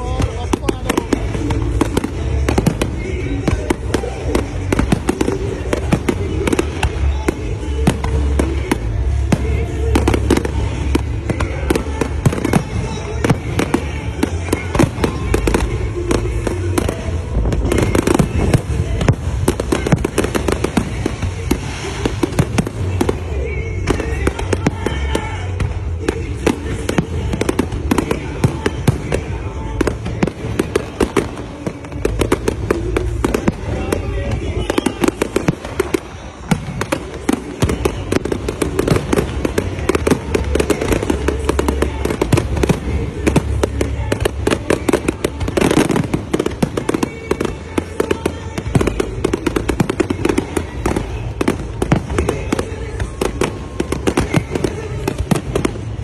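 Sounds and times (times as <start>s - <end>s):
fireworks bangs and crackles: 0.0s - 56.0s.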